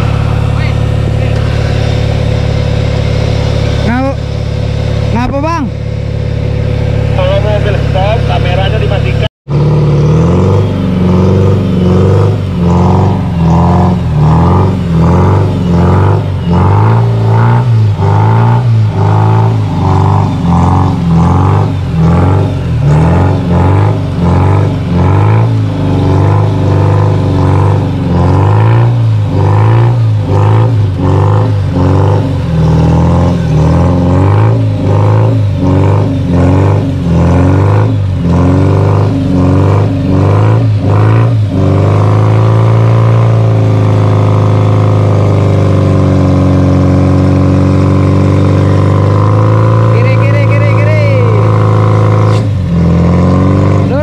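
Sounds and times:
engine revving hard: 0:00.0 - 0:54.0.

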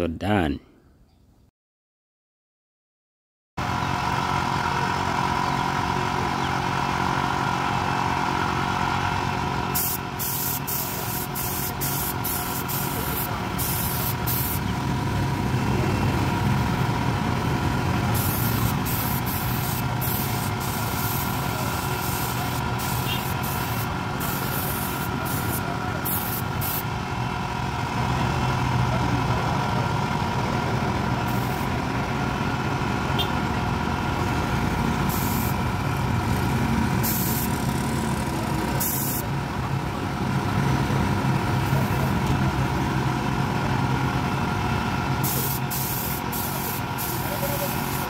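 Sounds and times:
air compressor running: 0:03.6 - 0:28.2, 0:29.3 - 0:39.4, 0:41.3 - 0:48.0
spray gun hissing: 0:09.8 - 0:14.6, 0:18.1 - 0:26.8, 0:35.1 - 0:35.6, 0:37.0 - 0:37.5, 0:38.8 - 0:39.2, 0:45.2 - 0:48.0.

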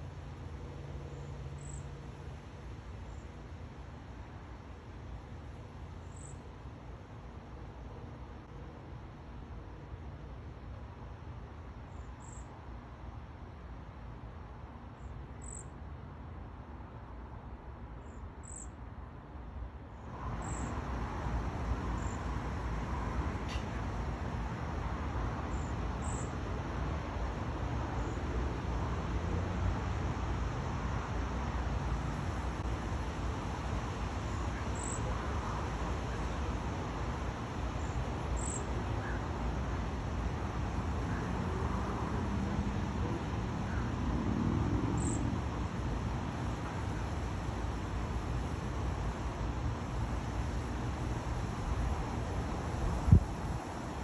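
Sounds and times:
low rumbling background noise: 0:00.0 - 0:54.0.

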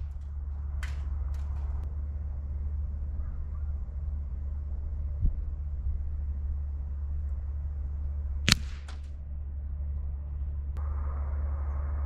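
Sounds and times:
low rumble: 0:00.0 - 0:12.0
air rifle shot crack: 0:08.5 - 0:09.1.

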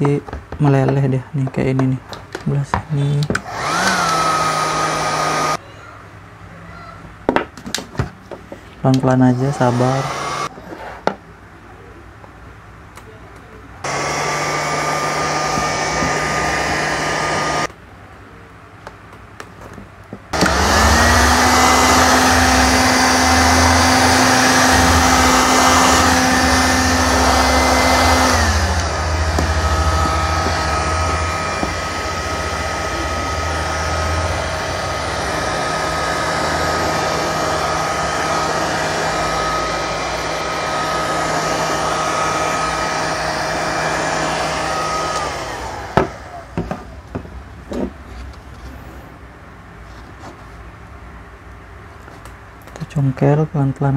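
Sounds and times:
heat gun blowing air: 0:03.3 - 0:05.6, 0:09.2 - 0:10.5, 0:13.8 - 0:17.7, 0:20.4 - 0:46.8.

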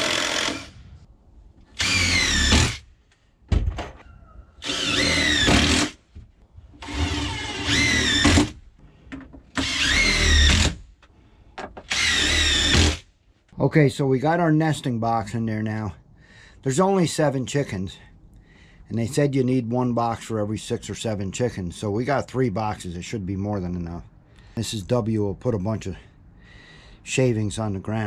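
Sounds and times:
drill clicks: 0:00.0 - 0:00.8, 0:01.6 - 0:02.9, 0:04.6 - 0:06.0, 0:06.8 - 0:08.6, 0:09.5 - 0:10.9, 0:11.6 - 0:13.0
power drill driving screws: 0:00.0 - 0:00.8, 0:01.7 - 0:02.9, 0:04.6 - 0:06.0, 0:06.8 - 0:08.6, 0:09.6 - 0:10.9, 0:11.8 - 0:13.1.

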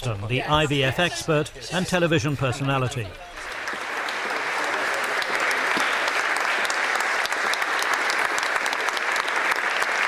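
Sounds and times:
audience applauding: 0:03.2 - 0:10.0.

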